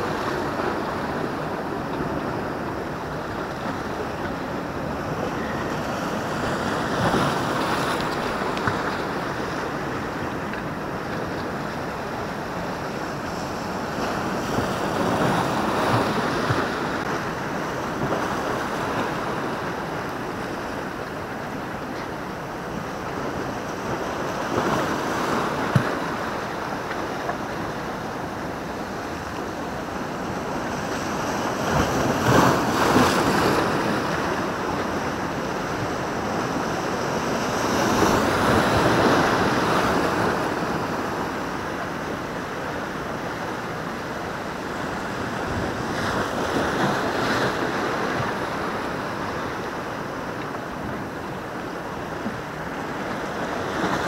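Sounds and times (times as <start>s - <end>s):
waves breaking on rocks: 0.0s - 54.0s.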